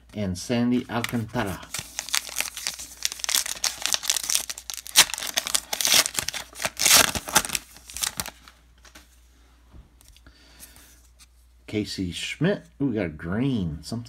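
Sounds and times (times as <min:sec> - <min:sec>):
wrapper tearing and crinkling: 0:01.0 - 0:08.5.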